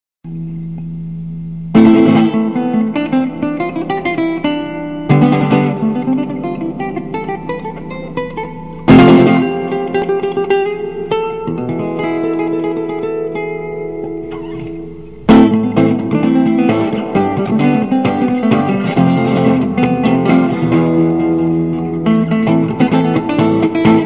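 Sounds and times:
acoustic guitar strumming and picking: 1.7 - 24.0.

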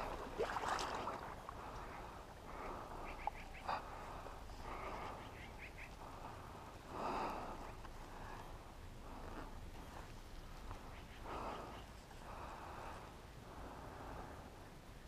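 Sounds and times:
faint duck quacks: 2.9 - 3.9, 4.7 - 6.0, 10.8 - 12.0.

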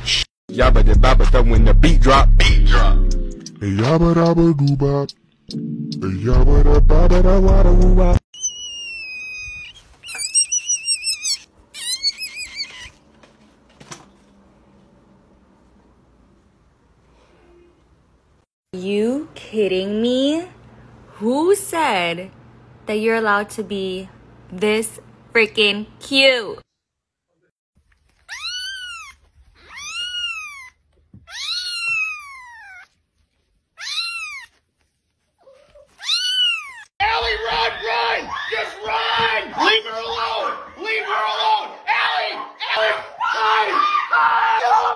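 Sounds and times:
baby rabbit squealing: 8.4 - 13.0, 28.2 - 33.0, 33.8 - 34.6, 35.9 - 36.9
kitten meowing: 8.4 - 13.0, 28.3 - 32.9, 33.8 - 34.6, 36.0 - 36.9.

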